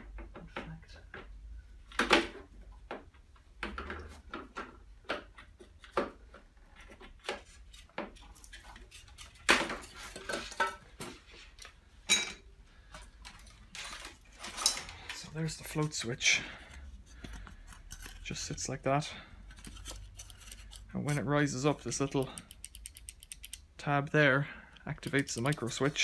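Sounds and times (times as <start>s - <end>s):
plastic and metal parts clicking: 19.5s - 23.7s, 24.8s - 26.0s.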